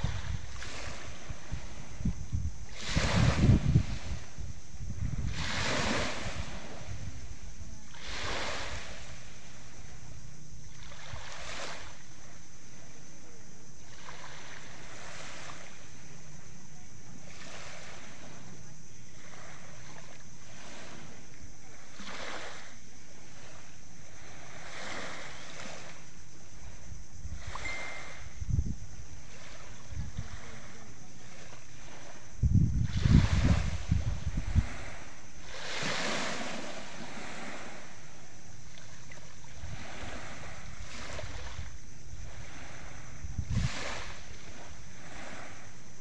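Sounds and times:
waves lapping on pebble shore: 0.0 - 46.0
wind buffeting microphone: 0.0 - 46.0.

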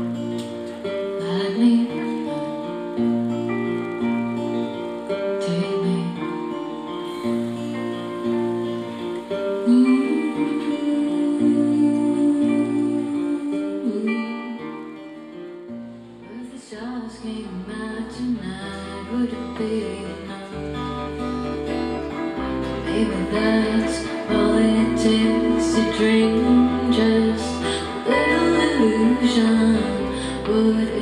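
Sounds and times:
acoustic guitar melody: 0.0 - 31.0
bass notes: 20.7 - 31.0.

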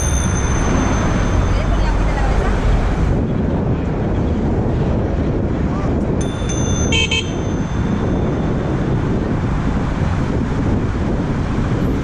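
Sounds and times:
thin high ringing: 0.0 - 2.6, 6.2 - 9.0
wind rumble on microphone: 0.0 - 12.0
electronic bicycle horn toots: 6.9 - 7.5.

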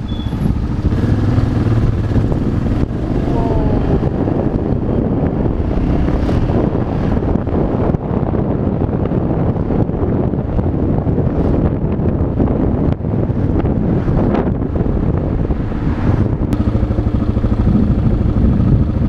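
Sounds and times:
motorcycle engine rumbling: 0.0 - 19.0.

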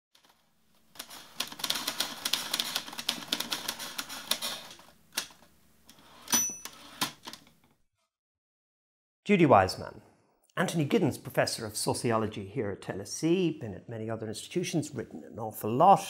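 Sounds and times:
typewriter keys clacking: 0.9 - 5.4
carriage-return bell ding: 6.3 - 6.9.

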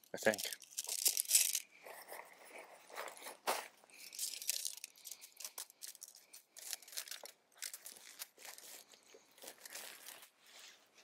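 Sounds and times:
tent pole sections clicking: 0.0 - 1.6, 4.0 - 10.3
rustling: 0.1 - 11.0.

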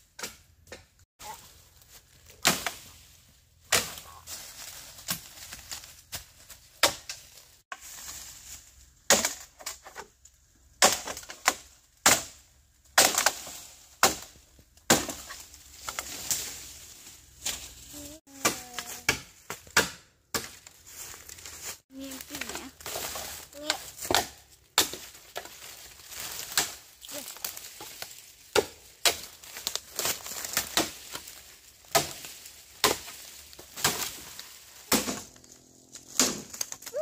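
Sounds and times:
blade chopping: 31.9 - 36.9.

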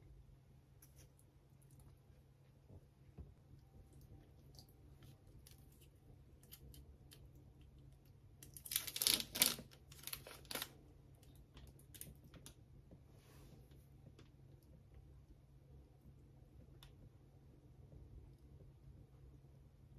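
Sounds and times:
plastic film crackling: 8.6 - 10.8.

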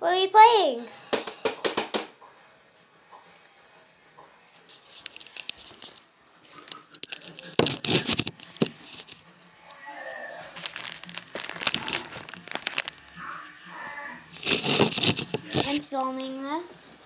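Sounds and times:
fingers rustling on phone microphone: 4.6 - 9.4, 10.5 - 16.2.

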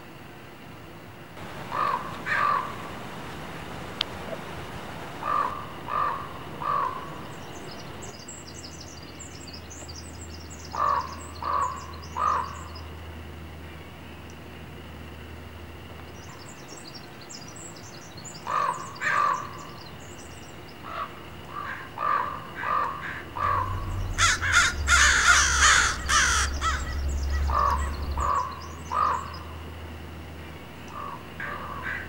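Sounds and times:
crows cawing: 1.4 - 3.1, 5.2 - 7.4, 10.8 - 12.6, 18.5 - 19.5, 20.9 - 29.4, 31.0 - 32.0
rushing noise with low rumble: 1.4 - 8.1, 22.9 - 30.7
small birds chirping: 1.4 - 12.9, 22.0 - 29.8.

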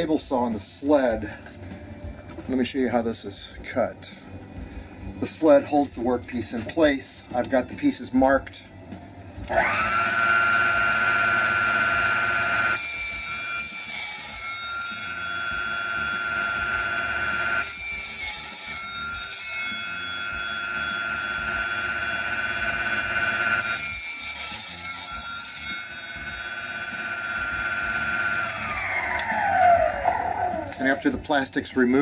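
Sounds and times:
table saw whining: 9.4 - 32.0
saw blade cutting plexiglass: 9.5 - 31.2.

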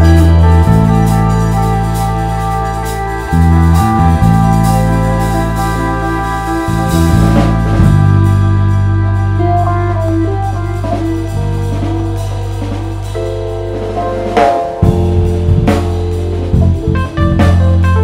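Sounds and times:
low bass note: 0.0 - 18.0
sustained keyboard chords: 0.0 - 18.0
drum hits: 13.9 - 18.0.

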